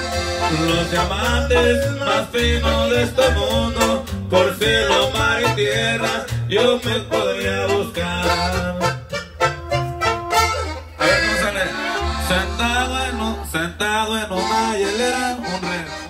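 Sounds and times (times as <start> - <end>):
live band with tuba and bass: 0.0 - 16.0.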